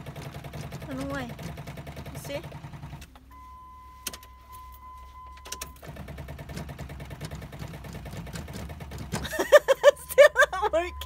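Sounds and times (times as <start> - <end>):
starter motor chattering: 0.0 - 3.2, 5.7 - 11.0
dashboard warning tone: 3.2 - 5.8, 9.9 - 11.0.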